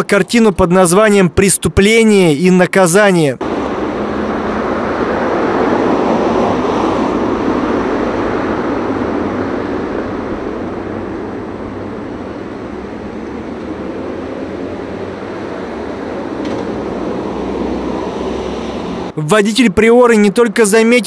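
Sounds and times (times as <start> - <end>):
car engine and road noise: 3.4 - 19.2.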